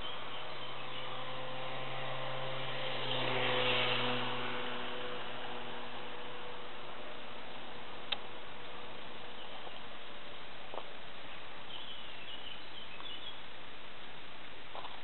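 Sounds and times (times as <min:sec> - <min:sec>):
steady background hiss: 0:04.6 - 0:15.0.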